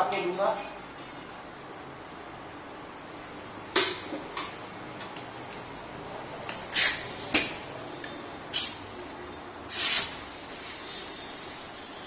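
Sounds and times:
compressed air hissing: 6.7s - 7.5s, 8.5s - 8.9s, 9.7s - 12.0s.

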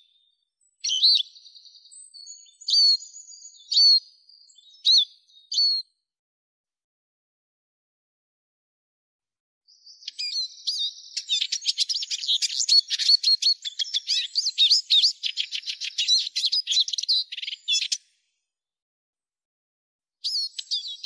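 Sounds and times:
bird twittering song: 0.0s - 6.0s, 9.7s - 18.2s, 20.2s - 21.0s.

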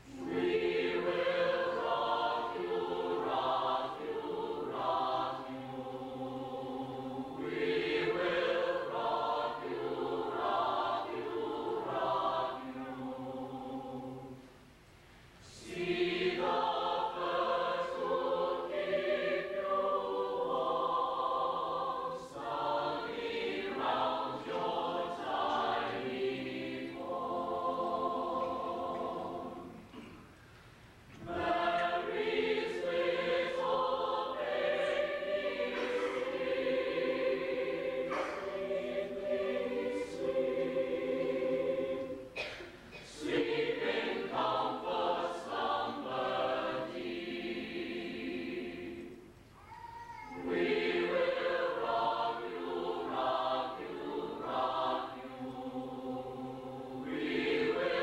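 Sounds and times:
children's choir singing: 0.0s - 14.6s, 15.4s - 30.2s, 31.1s - 58.0s.

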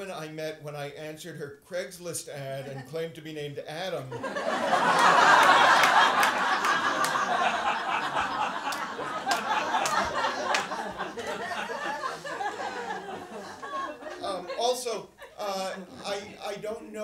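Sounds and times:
audience laughter: 4.1s - 16.6s.

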